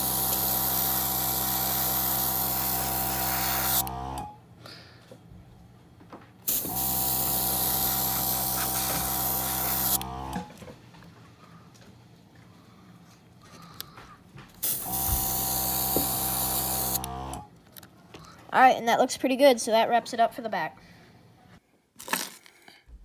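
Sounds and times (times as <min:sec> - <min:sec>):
airbrush compressor motor humming: 0:00.0 - 0:04.3, 0:06.5 - 0:10.5, 0:14.6 - 0:17.5
airbrush spraying air hiss: 0:06.5 - 0:10.0.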